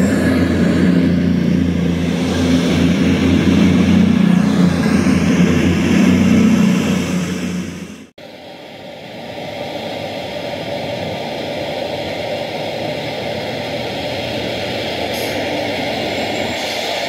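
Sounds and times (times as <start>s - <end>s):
model train engine running: 8.2s - 17.0s.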